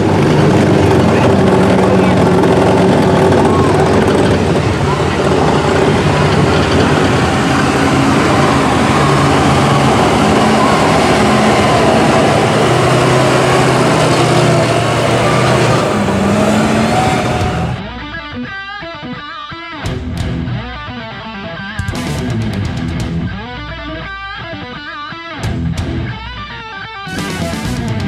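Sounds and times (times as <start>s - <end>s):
truck engine running hard: 0.0s - 18.3s, 27.1s - 28.0s
steady rushing noise: 0.0s - 18.5s.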